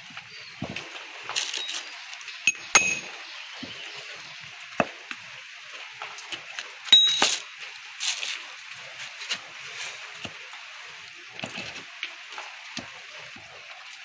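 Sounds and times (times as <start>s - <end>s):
hammer clinking on metal: 2.5s - 3.1s, 7.0s - 7.4s.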